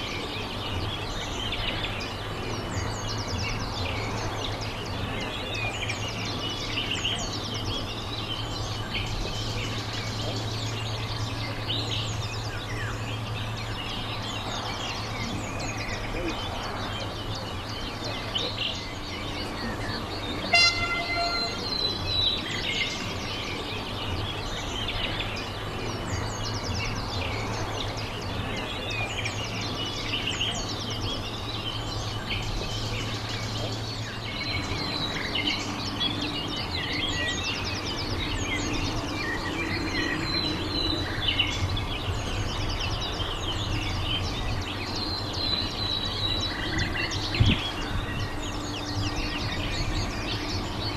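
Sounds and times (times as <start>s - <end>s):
small birds chirping: 0.0s - 50.9s
steady low hum: 0.0s - 50.9s
short horn toot: 20.5s - 21.7s.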